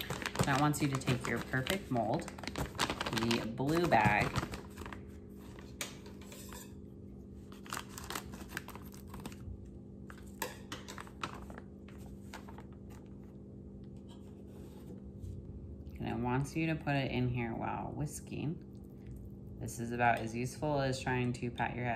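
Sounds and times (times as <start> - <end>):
plastic bag crinkling: 0.0 - 5.7, 7.5 - 9.6, 10.2 - 13.2
low background hum: 0.0 - 21.9.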